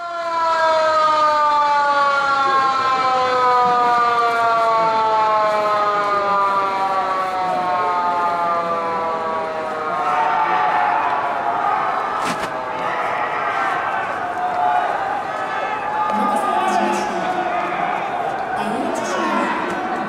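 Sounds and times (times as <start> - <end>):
siren sliding down in pitch: 0.0 - 11.3.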